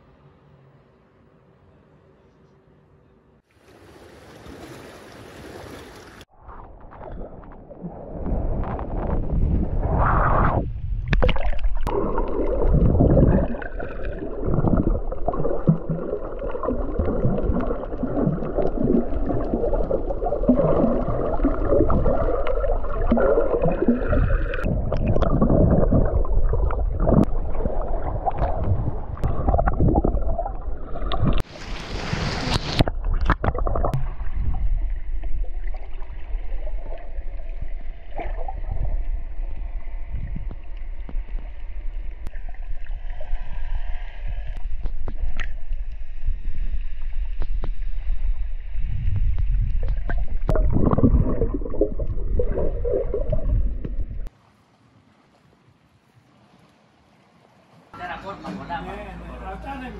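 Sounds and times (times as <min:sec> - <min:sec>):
muffled underwater water rushing: 0:03.5 - 0:57.9
hissing splash: 0:11.2 - 0:33.0.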